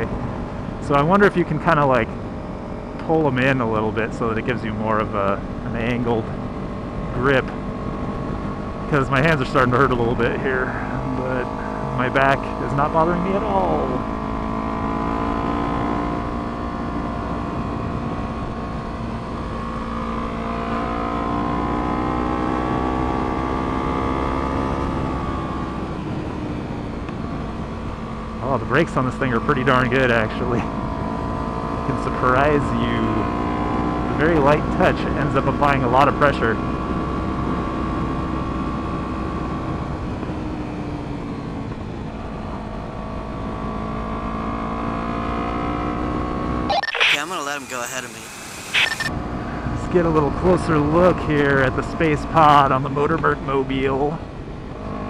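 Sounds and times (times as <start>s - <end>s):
wind rumble on microphone: 16.2s - 19.6s
wind noise on microphone: 17.4s - 18.8s.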